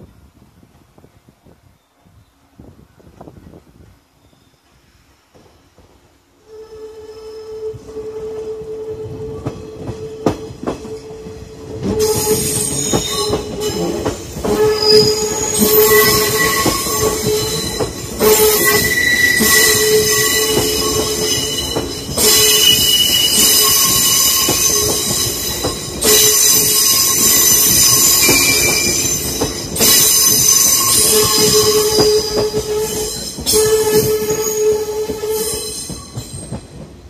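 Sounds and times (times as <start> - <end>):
electric train passing: 4.6 - 37.0
train wheels squealing shrilly: 6.5 - 36.8
train wheels clicking: 7.7 - 37.0.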